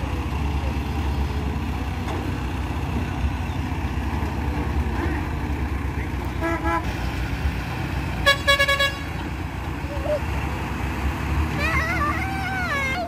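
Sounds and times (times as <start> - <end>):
heavy diesel engines running: 0.0 - 13.0
vehicle horn toot: 6.4 - 6.9, 8.2 - 9.2.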